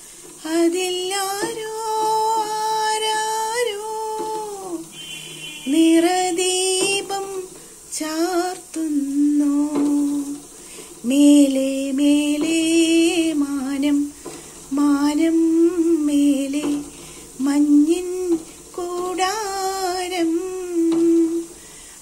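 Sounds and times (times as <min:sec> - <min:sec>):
woman singing unaccompanied: 0:00.0 - 0:22.0.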